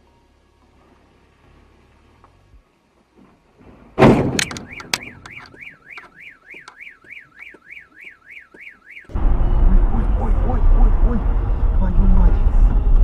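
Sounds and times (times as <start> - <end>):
van hitting parked car: 4.0 - 4.6
car alarm siren: 4.4 - 11.2.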